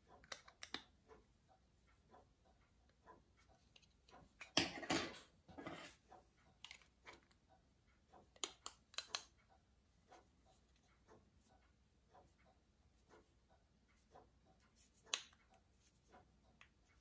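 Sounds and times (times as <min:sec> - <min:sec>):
sharp metal clicks: 0:08.2 - 0:09.5.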